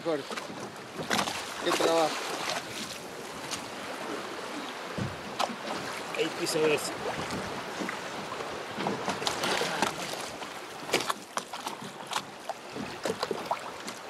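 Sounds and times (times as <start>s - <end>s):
water splashing around boat: 0.0s - 14.0s
wind: 0.0s - 14.0s
knocks on boat: 0.3s - 2.9s, 4.9s - 5.9s, 6.9s - 8.1s, 8.7s - 14.0s.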